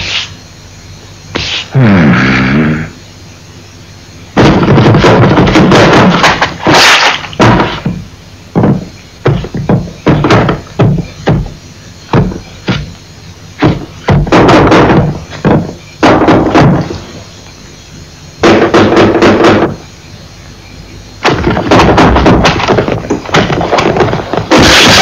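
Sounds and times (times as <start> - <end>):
noisy crashing: 4.4 - 11.4, 21.2 - 25.0
loud knocks and bangs: 4.4 - 13.0, 13.6 - 17.2, 18.4 - 19.8, 21.2 - 25.0.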